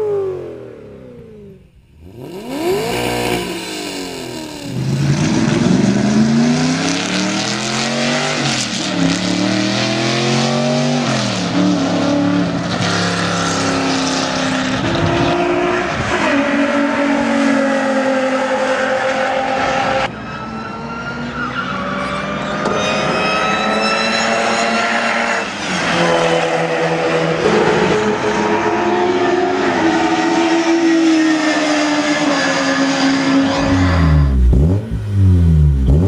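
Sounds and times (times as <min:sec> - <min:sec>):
sports car engines accelerating: 0:00.0 - 0:36.0
faint car engine revving: 0:33.4 - 0:36.0.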